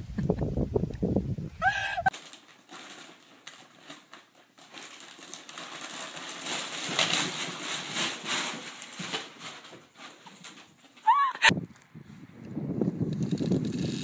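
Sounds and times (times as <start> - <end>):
shopping bag rustling and scraping: 2.1 - 11.3.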